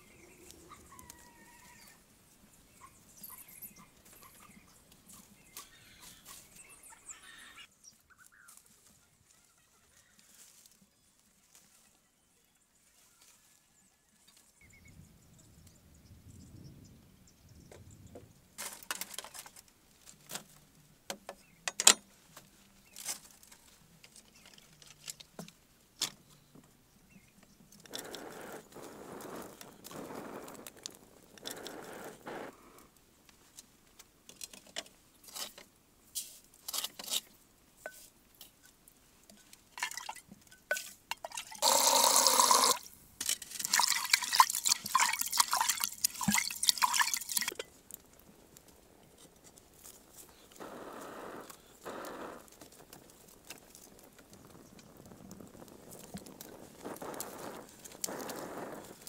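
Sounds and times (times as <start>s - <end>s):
water pouring into clay pot: 39.8s - 40.2s, 41.1s - 47.7s.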